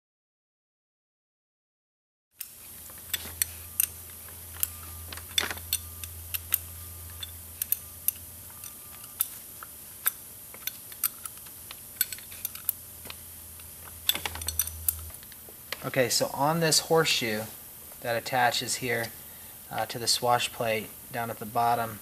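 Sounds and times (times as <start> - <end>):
wrench clicking on metal bolts: 2.4 - 9.4, 10.0 - 12.8, 13.6 - 15.1
steady low hum: 2.4 - 22.0.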